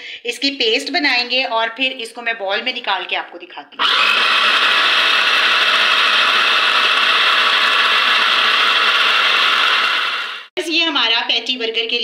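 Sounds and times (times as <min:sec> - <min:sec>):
food processor running: 0:03.8 - 0:10.5.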